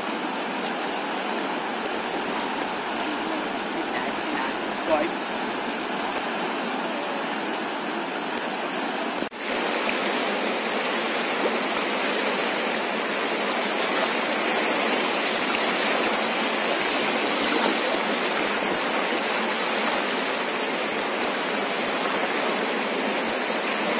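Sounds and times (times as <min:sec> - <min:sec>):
flooded river rushing: 0:00.0 - 0:23.9.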